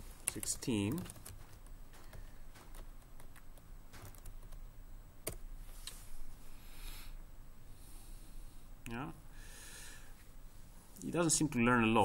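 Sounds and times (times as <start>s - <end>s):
keyboard keys tapping: 0.2s - 4.6s.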